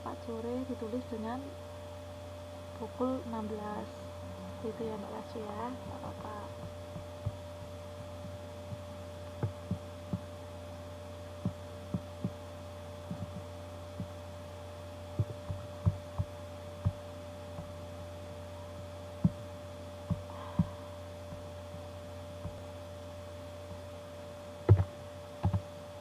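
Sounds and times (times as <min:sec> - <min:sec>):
steady electrical hum: 0:00.0 - 0:26.0
laptop taps and clicks: 0:24.7 - 0:25.6.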